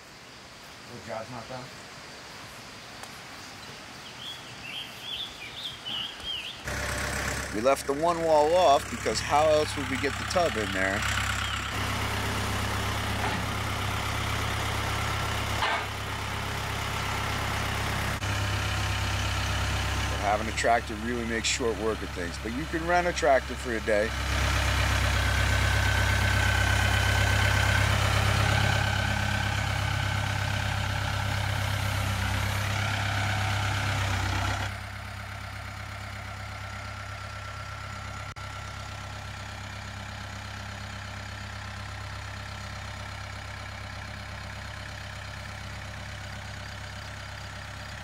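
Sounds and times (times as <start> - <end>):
tractor diesel engine running: 6.0 - 48.0.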